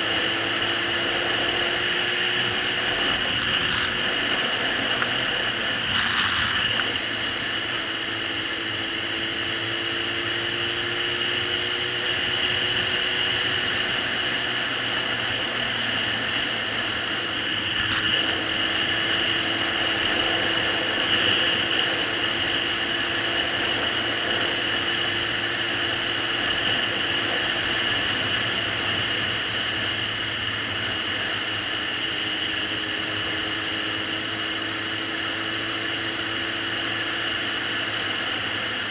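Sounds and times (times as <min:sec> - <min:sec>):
motorcycle engine cruising: 0:00.0 - 0:38.9.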